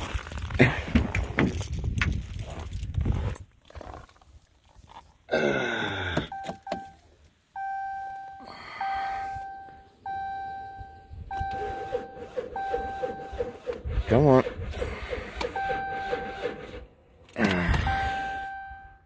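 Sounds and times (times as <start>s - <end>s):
door warning chime dinging: 6.3s - 7.0s, 7.6s - 13.4s, 15.6s - 16.6s, 17.8s - 19.0s.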